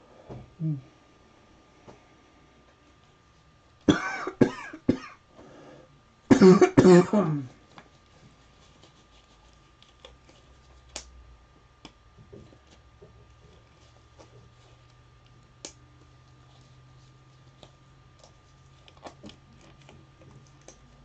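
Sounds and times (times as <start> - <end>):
person coughing: 3.9 - 5.2, 6.3 - 7.5.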